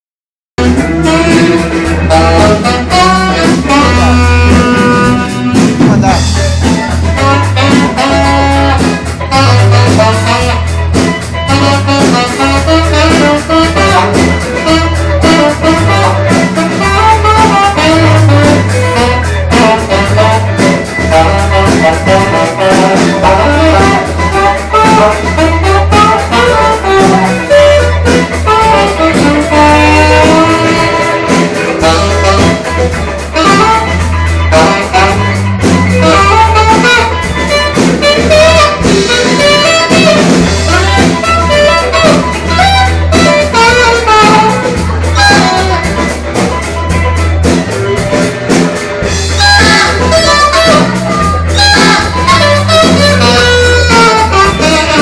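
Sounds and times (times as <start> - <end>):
bass line: 0.6 - 55.0
drum hits: 0.6 - 55.0
live rock band playing: 0.6 - 55.0.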